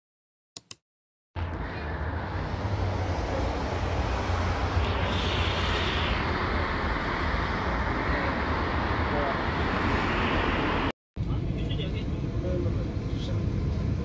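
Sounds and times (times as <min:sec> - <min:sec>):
vehicle in motion rumbling: 0:01.4 - 0:14.0
high hiss: 0:04.2 - 0:08.6.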